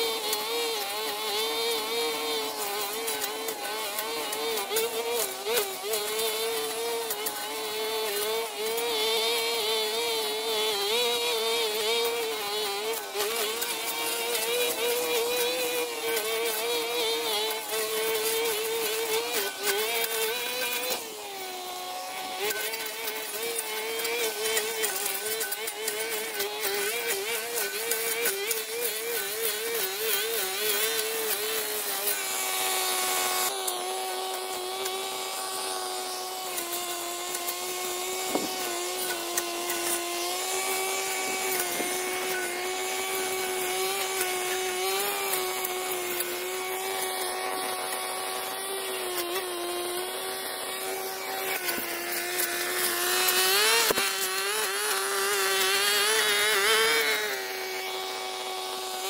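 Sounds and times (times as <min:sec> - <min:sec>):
small petrol engine running: 0:00.0 - 0:59.0.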